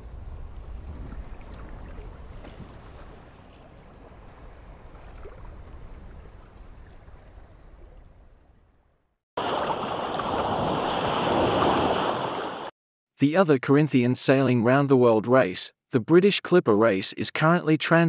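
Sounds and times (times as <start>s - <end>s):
wind and water ambience: 0.0s - 12.7s
loud rushing spray and wind: 9.4s - 12.7s.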